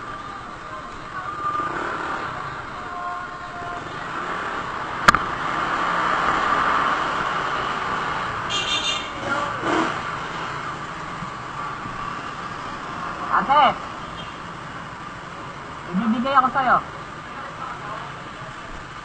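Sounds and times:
road traffic and motorcycle rumble: 0:00.0 - 0:19.0.

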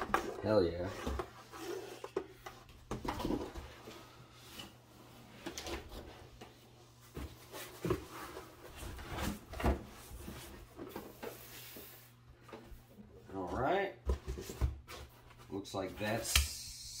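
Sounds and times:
foam and cardboard rustling: 0:06.9 - 0:12.2.

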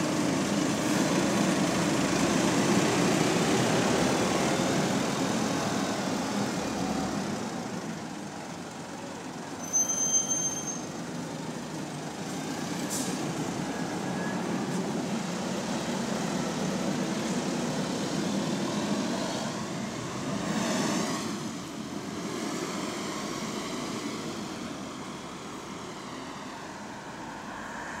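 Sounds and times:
bus engine pulling away: 0:00.0 - 0:28.0
high squeal: 0:09.6 - 0:10.9.

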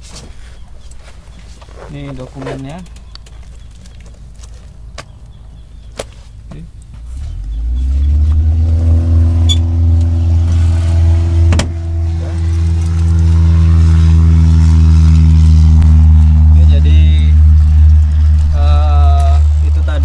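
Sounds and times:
engine starting and running: 0:07.1 - 0:20.0.

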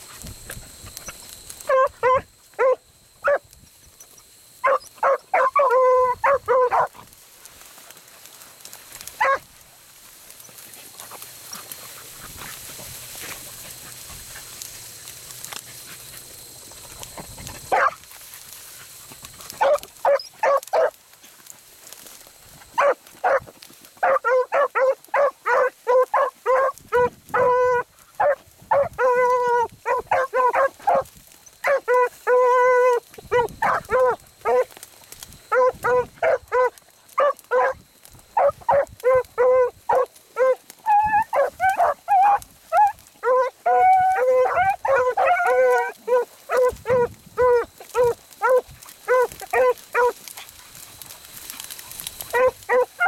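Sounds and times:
dog baying: 0:24.0 - 0:31.0, 0:31.6 - 0:34.7, 0:35.5 - 0:37.8, 0:38.4 - 0:50.2, 0:52.3 - 0:53.0.

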